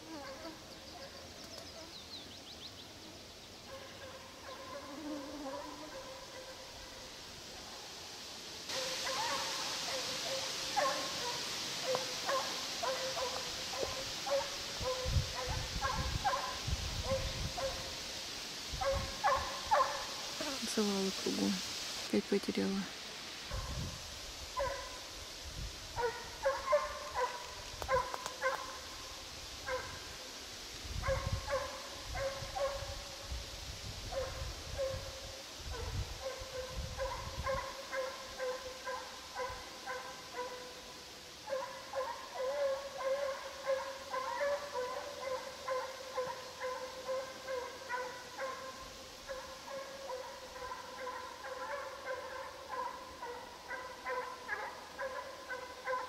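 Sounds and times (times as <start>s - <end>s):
hound baying: 8.7s - 17.8s, 18.8s - 20.1s, 26.0s - 28.8s, 41.5s - 56.0s.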